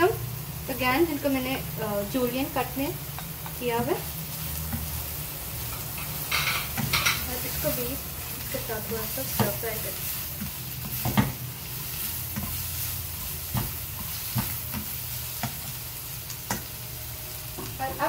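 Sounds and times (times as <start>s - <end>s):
food sizzling in a wok: 0.0s - 18.0s
spatula scraping and knocking pan: 5.7s - 7.7s, 10.4s - 15.8s.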